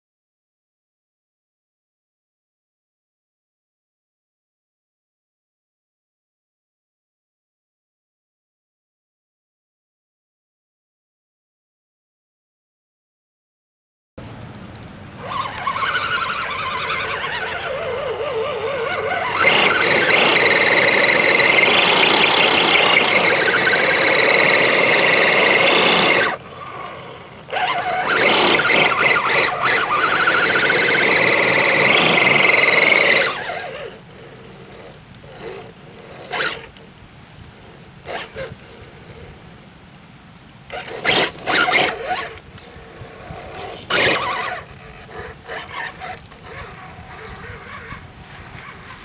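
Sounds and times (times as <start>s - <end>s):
electric motor whining: 15.1s - 49.0s.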